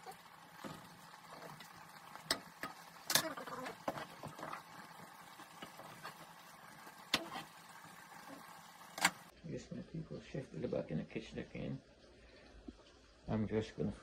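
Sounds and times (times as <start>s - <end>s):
wooden spoon stirring in metal pot: 0.0s - 9.3s.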